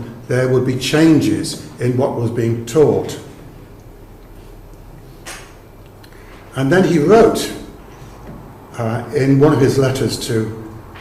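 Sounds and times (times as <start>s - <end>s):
man speaking: 0.0s - 3.4s, 6.5s - 7.8s, 8.7s - 10.8s
steady low hum: 0.0s - 11.0s.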